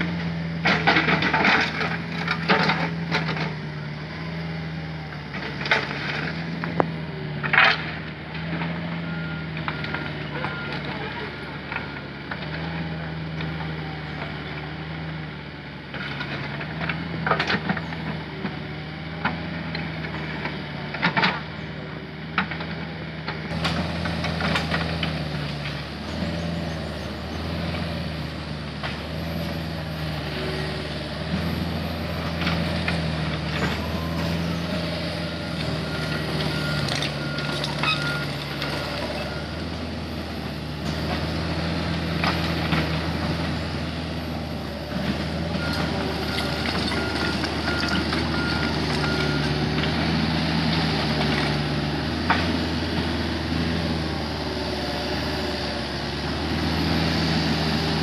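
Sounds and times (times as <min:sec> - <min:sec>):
diesel engine running: 0:00.0 - 0:58.0.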